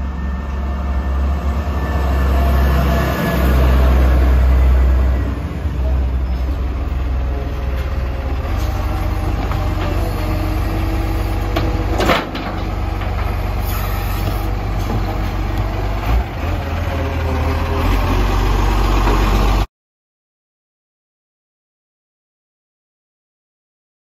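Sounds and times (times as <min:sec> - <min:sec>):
truck diesel engine running: 0:00.0 - 0:19.7
hydraulic arm lifting bin: 0:07.8 - 0:19.6.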